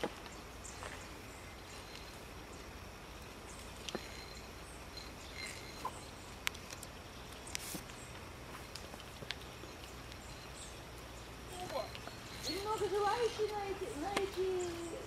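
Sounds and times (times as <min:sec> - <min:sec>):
faint background hiss: 0:00.0 - 0:15.0
high bird chirps: 0:09.6 - 0:15.0.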